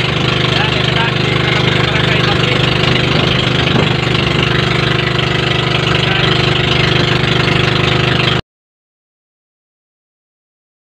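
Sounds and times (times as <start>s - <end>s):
boat engine running: 0.0s - 8.4s.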